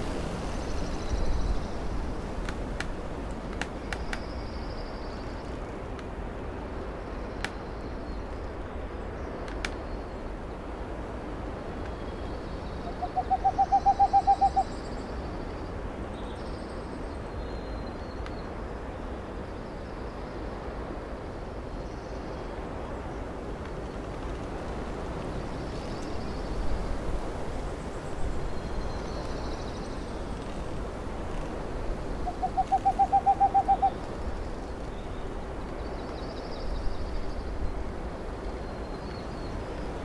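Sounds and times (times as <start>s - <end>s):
songbird calls: 11.8s - 15.6s, 28.1s - 40.0s
owl hooting: 12.8s - 14.7s, 32.2s - 34.1s.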